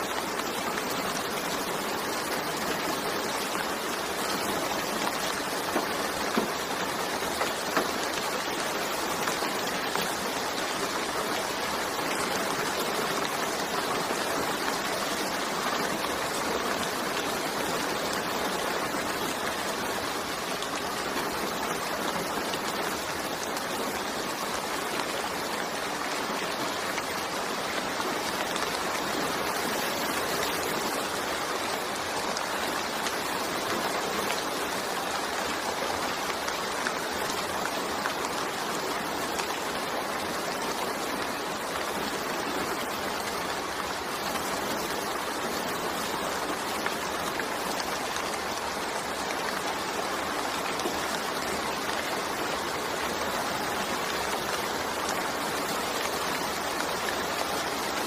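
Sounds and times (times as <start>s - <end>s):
steady rain falling: 0.0s - 58.0s.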